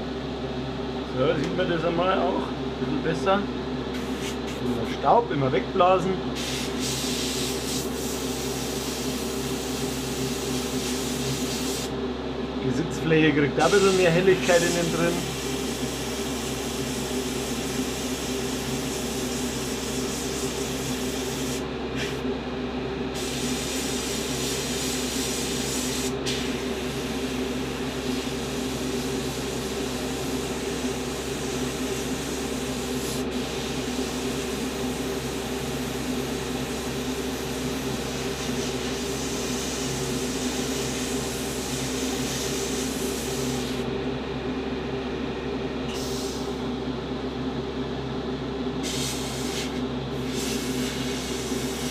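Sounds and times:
steady low hum: 0.0s - 51.9s
airbrush spraying hiss: 4.0s - 4.7s, 6.4s - 11.9s, 13.6s - 22.2s, 23.2s - 27.4s, 28.0s - 43.9s, 48.8s - 51.9s.

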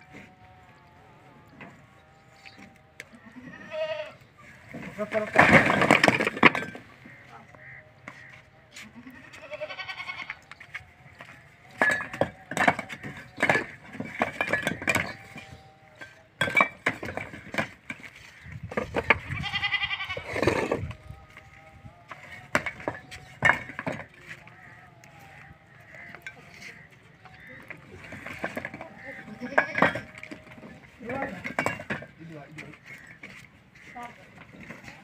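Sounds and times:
goat bleating: 2.4s - 4.7s, 7.1s - 11.1s, 18.3s - 21.0s, 24.0s - 30.6s
bricks clattering onto pile: 4.7s - 6.9s, 11.2s - 21.4s, 22.1s - 24.4s, 27.5s - 33.3s.

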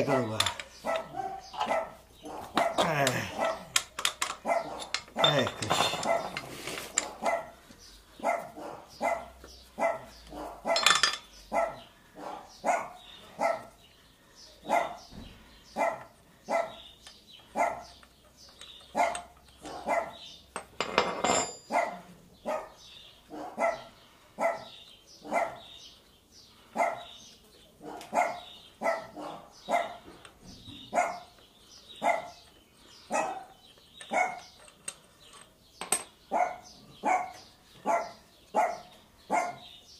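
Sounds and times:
dog barking: 0.8s - 3.8s, 4.4s - 5.4s, 7.0s - 7.6s, 8.2s - 10.9s, 11.5s - 13.8s, 14.6s - 15.1s, 15.8s - 16.8s, 17.6s - 17.9s, 18.9s - 20.2s, 21.7s - 25.7s, 26.8s - 27.1s, 27.8s - 30.1s, 30.9s - 31.4s, 32.0s - 32.4s, 33.1s - 34.5s, 36.3s - 39.7s.

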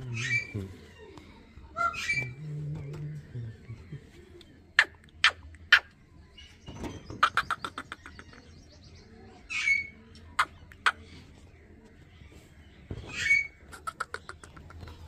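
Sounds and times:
bird chirps: 0.0s - 11.4s
bird chattering: 1.8s - 6.0s, 7.1s - 8.6s, 9.5s - 11.0s, 13.1s - 15.0s.

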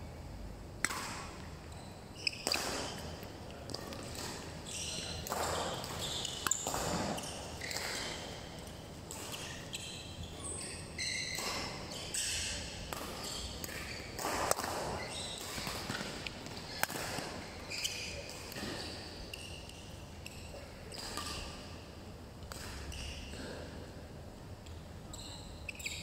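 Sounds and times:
racket striking shuttlecock: 0.8s - 1.3s, 2.4s - 3.1s, 5.2s - 8.4s, 12.9s - 17.4s
shoes squeaking on floor: 1.8s - 3.2s, 4.0s - 8.6s, 9.2s - 12.6s, 13.2s - 14.2s, 14.8s - 21.4s, 25.1s - 26.0s.

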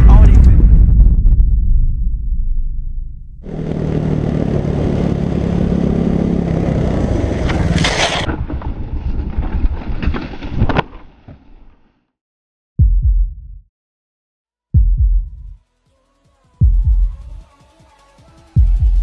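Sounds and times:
motorcycle engine running: 3.4s - 7.7s
wind rush: 3.4s - 10.2s
motorcycle crashing knocks and scrapes: 7.1s - 11.5s.

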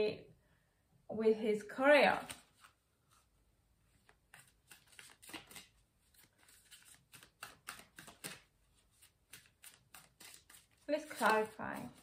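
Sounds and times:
cards being shuffled: 2.1s - 3.3s, 3.9s - 12.0s.

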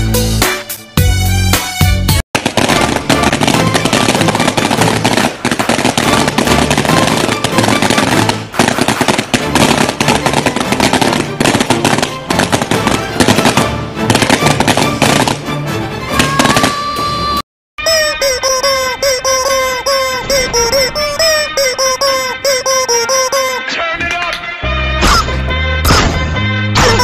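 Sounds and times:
firecrackers banging rapidly: 2.4s - 16.9s.

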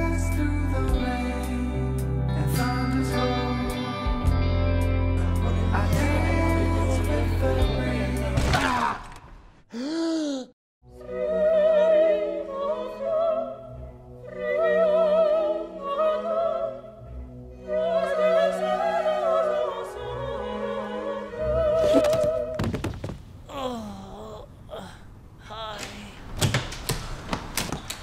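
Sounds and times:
operatic singing: 5.3s - 9.2s, 10.9s - 22.7s.

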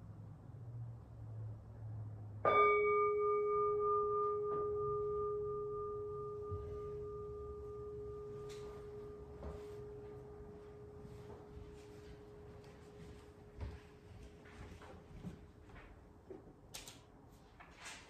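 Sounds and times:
temple bowl bell ringing: 2.4s - 14.0s.

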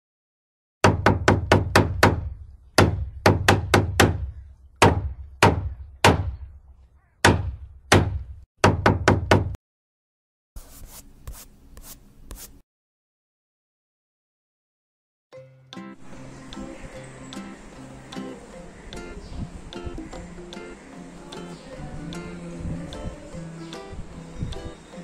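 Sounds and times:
hammer driving nails into wood: 0.8s - 6.4s
paintbrush strokes on board: 10.6s - 12.6s.

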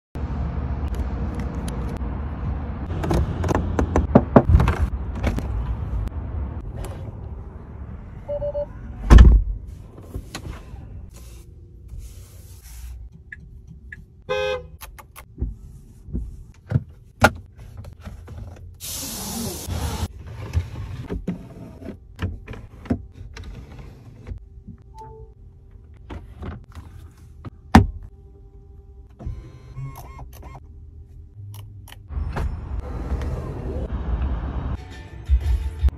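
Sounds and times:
car mechanism clicks and knocks: 2.9s - 5.4s
hiss: 18.8s - 19.7s.

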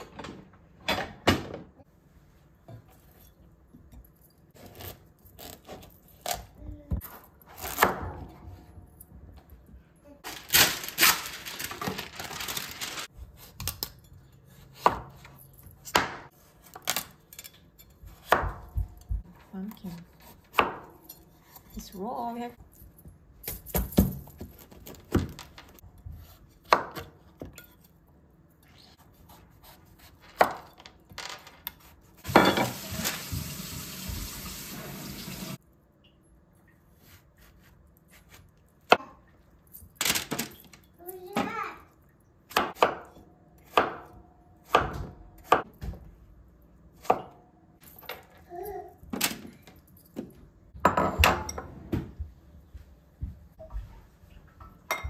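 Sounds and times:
knife chopping on wooden board: 42.5s - 46.0s.

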